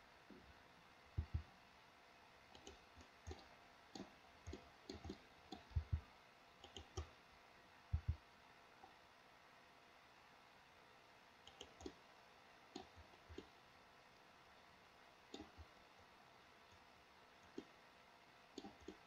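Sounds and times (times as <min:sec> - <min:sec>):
computer mouse clicking: 0:01.2 - 0:01.5, 0:02.5 - 0:06.0, 0:06.6 - 0:07.2, 0:07.9 - 0:08.2, 0:11.4 - 0:12.0, 0:12.7 - 0:13.5, 0:15.3 - 0:15.7, 0:17.4 - 0:17.7, 0:18.6 - 0:19.0.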